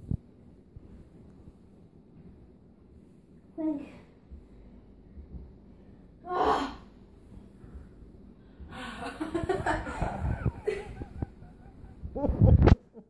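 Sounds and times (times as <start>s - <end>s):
light low bumps: 4.2s - 6.0s, 7.2s - 12.8s.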